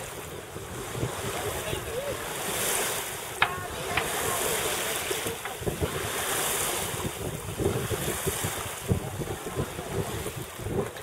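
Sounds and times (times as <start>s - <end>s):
water rushing along a hull: 0.0s - 11.0s
wind buffeting microphone: 0.0s - 11.0s.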